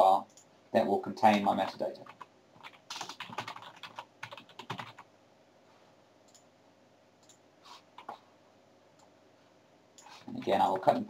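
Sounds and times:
typing on a computer keyboard: 1.3s - 5.1s.

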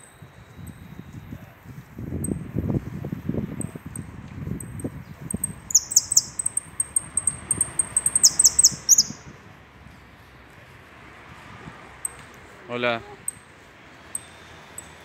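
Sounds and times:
finch singing: 4.6s - 9.3s.

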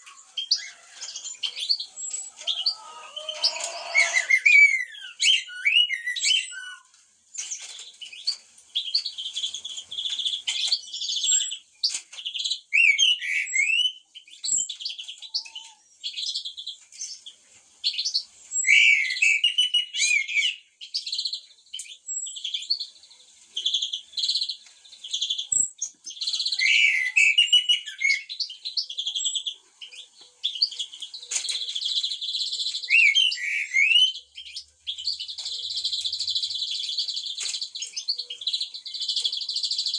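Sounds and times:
high bird chirps: 0.0s - 6.9s, 23.6s - 39.9s
songbirds singing: 0.0s - 39.9s.

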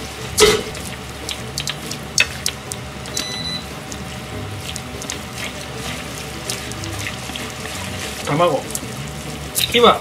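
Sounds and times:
chopsticks clicking against pan: 1.2s - 3.3s.

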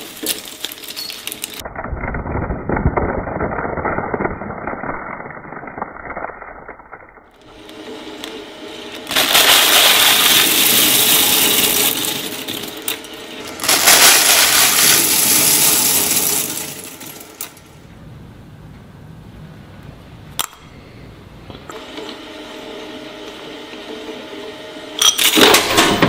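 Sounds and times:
shredder crushing dry pasta: 0.0s - 17.6s.

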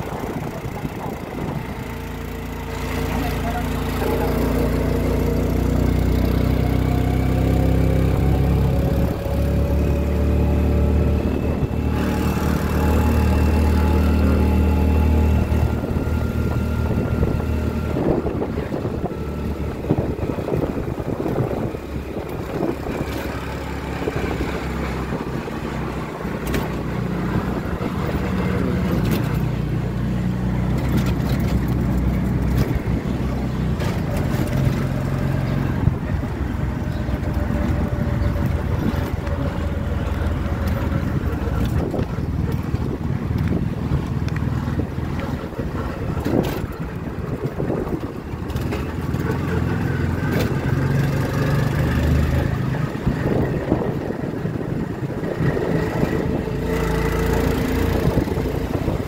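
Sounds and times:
road and wind noise: 0.0s - 59.0s
tuk tuk motor running: 0.0s - 59.0s
rough rumbling and rattling knocks: 30.6s - 59.0s.

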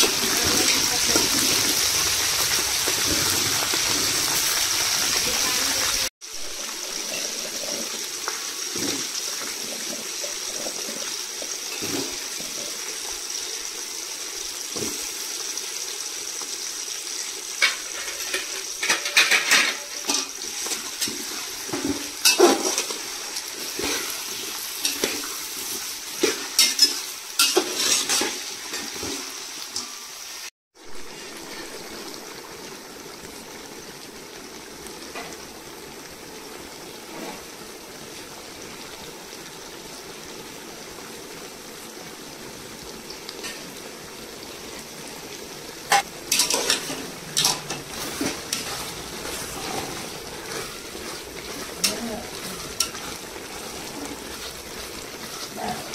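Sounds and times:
vegetables sizzling in oil: 0.0s - 55.9s
spatula scraping and knocking pot: 45.9s - 53.9s.

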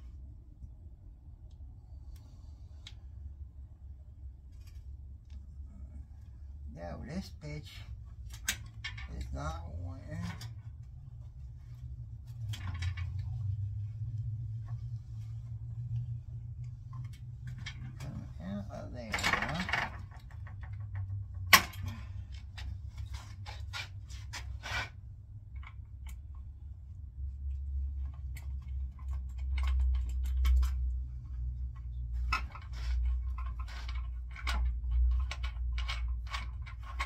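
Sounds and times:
low rumble: 0.0s - 23.4s.

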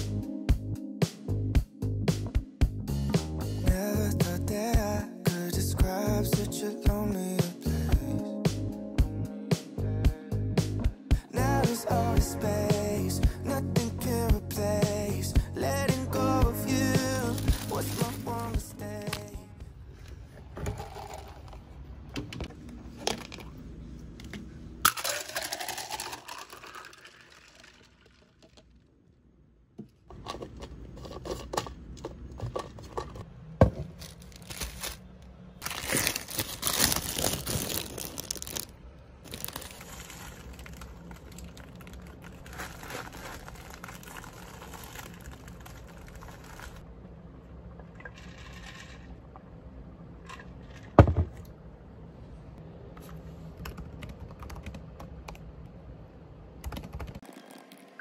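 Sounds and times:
packaging crinkling and rustling: 17.1s - 18.5s, 33.9s - 38.7s, 39.3s - 46.8s.

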